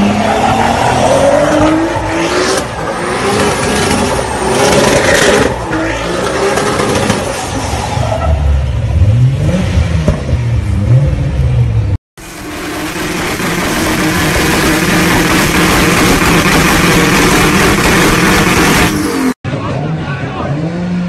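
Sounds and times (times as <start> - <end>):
car engine revving: 8.6 - 21.0
engine running steadily: 12.2 - 19.3.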